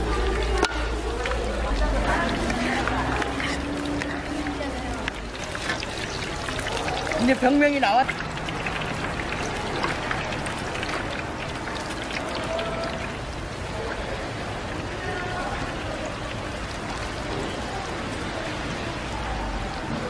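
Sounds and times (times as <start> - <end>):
oil sizzling deep-frying: 0.0 - 20.0.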